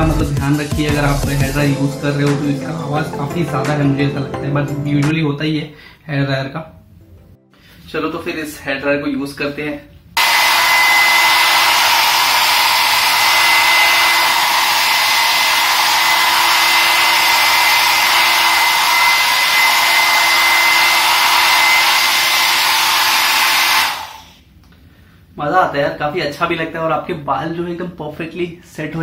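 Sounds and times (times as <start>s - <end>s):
hair dryer running: 10.2s - 24.4s.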